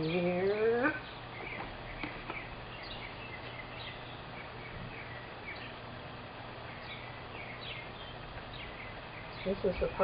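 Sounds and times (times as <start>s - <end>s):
small birds chirping: 0.0s - 10.0s.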